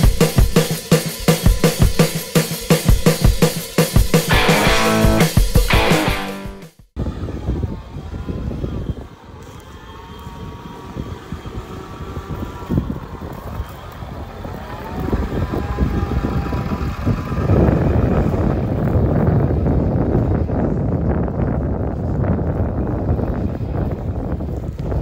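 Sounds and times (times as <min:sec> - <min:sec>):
diesel engine running with whine: 0:13.8 - 0:20.7.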